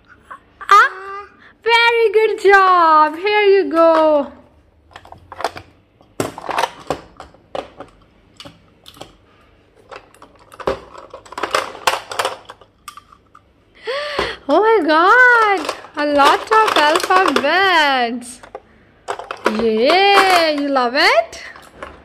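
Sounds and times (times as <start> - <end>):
plastic blocks clattering: 3.7 - 9.2, 9.8 - 13.4, 14.2 - 22.0.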